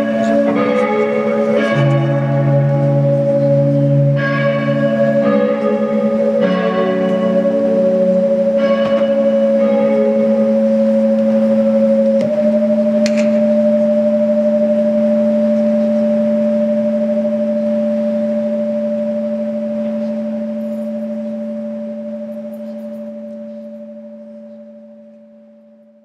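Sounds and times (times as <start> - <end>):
musical drone of two held notes: 0.0 - 26.0.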